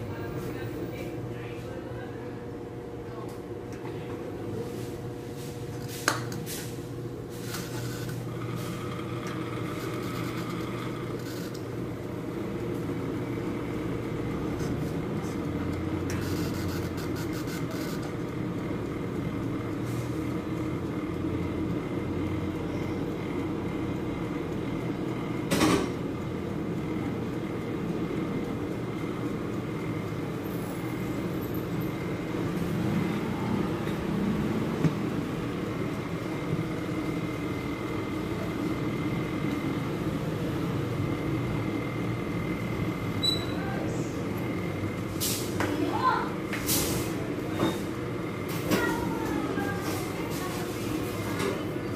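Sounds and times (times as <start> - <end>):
steady mechanical hum: 0.0 - 51.9.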